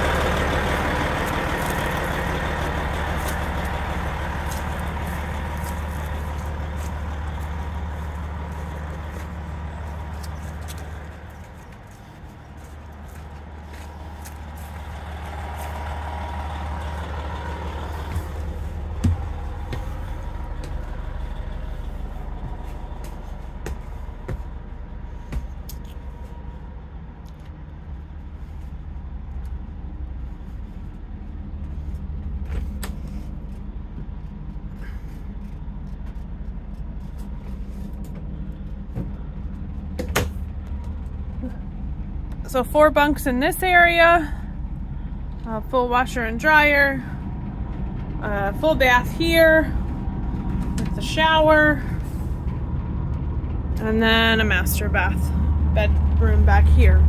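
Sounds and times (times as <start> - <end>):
footsteps: 0.0 - 26.7, 27.3 - 42.5
engine humming: 0.0 - 57.0.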